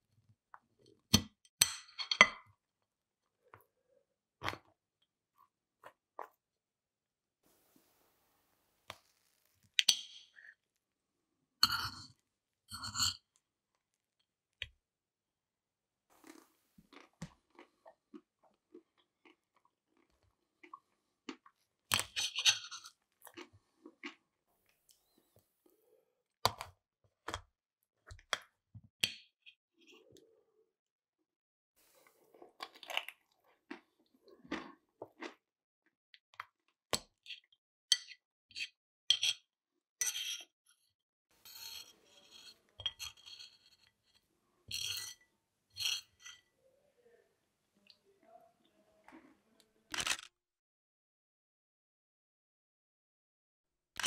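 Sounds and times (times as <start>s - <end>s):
fork scraping on a plate: 11.6s - 12.1s, 12.7s - 13.2s, 22.1s - 23.0s, 40.0s - 40.5s, 41.4s - 46.5s
food crunching: 32.0s - 35.4s.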